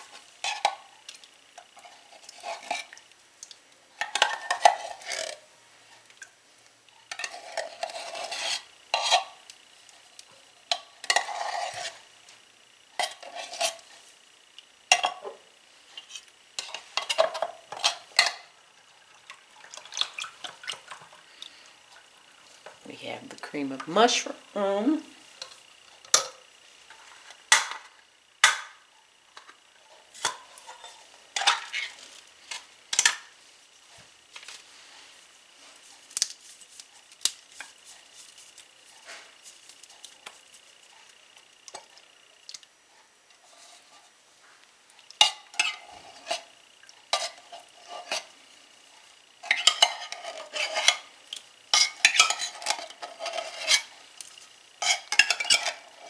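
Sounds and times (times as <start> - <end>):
metal spoon scraping in can: 1.8 - 3.0, 4.1 - 5.4, 7.1 - 9.4, 11.0 - 12.0, 13.0 - 14.0, 45.2 - 46.5, 47.1 - 48.3, 49.4 - 51.1, 51.7 - 53.9, 54.8 - 56.0.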